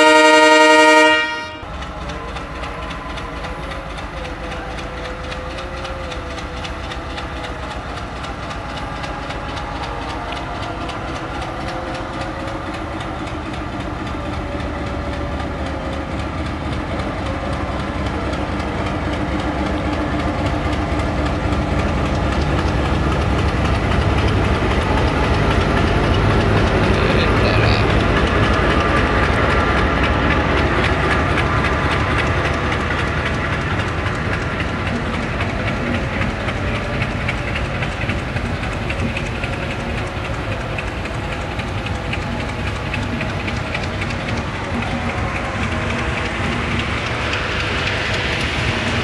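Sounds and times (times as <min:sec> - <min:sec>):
locomotive horn blast: 0:00.0 - 0:01.7
locomotive engine running: 0:00.0 - 0:49.0
train wheels on rails: 0:00.0 - 0:49.0.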